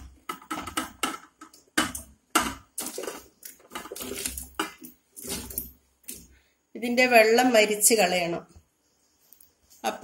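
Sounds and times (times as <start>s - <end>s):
chunks knocking into pot: 0.0s - 5.6s.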